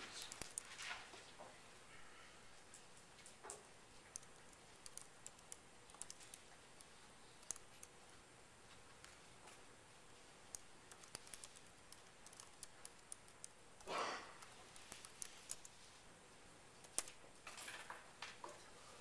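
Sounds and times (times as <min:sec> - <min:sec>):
computer keyboard clicks: 0:00.0 - 0:00.7, 0:02.7 - 0:08.0, 0:10.5 - 0:15.8, 0:16.8 - 0:17.5.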